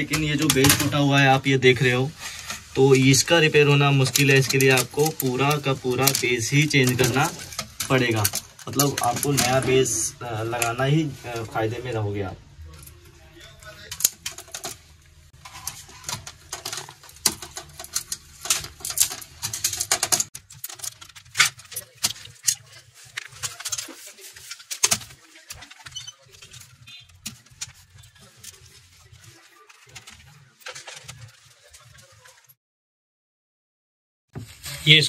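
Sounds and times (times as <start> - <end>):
small parts clicking on plastic: 2.4 - 10.8, 12.7 - 32.2.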